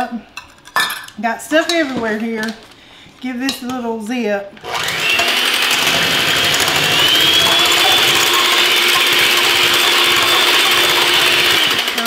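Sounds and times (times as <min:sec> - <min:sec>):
electric hand mixer whirring: 0:04.6 - 0:12.0.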